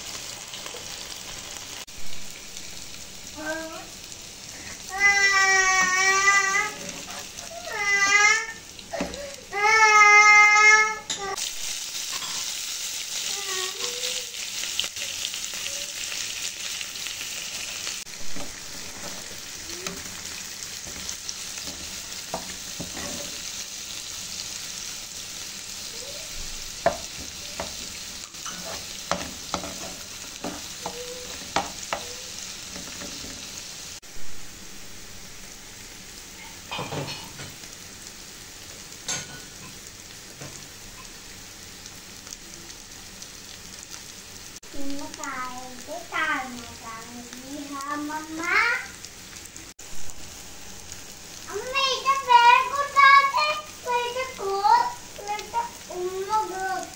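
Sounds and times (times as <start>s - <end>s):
onions sizzling in oil: 0.0s - 56.9s
metal spatula scraping pan: 6.7s - 7.5s, 20.8s - 23.4s, 28.4s - 30.7s.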